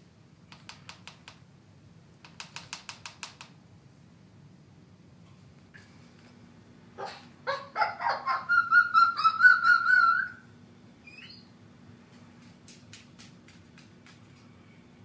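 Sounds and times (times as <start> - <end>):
cockatoo mimicking dog barks: 7.0 - 10.4
cockatoo wavering whining call: 7.0 - 11.5.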